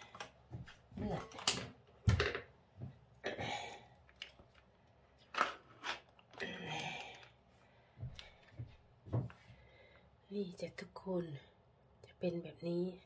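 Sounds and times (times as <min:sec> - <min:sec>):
rustles and crinkles: 0:04.0 - 0:09.7.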